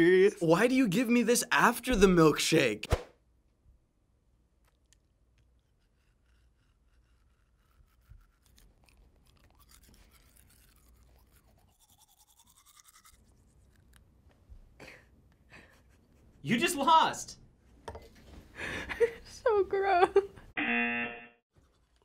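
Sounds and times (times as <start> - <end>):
toothbrush scrubbing teeth: 4.7 - 14.3, 15.5 - 16.4, 21.5 - 22.0.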